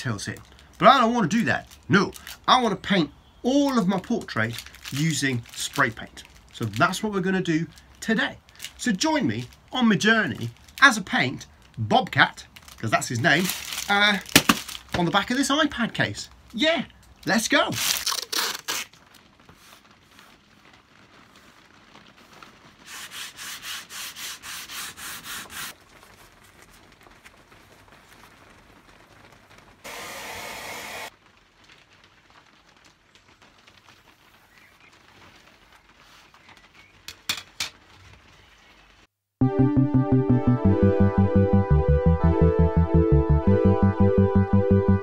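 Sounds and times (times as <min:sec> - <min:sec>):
sandpaper rubbing back and forth: 0:22.8 - 0:25.7
steady hiss: 0:29.8 - 0:31.2.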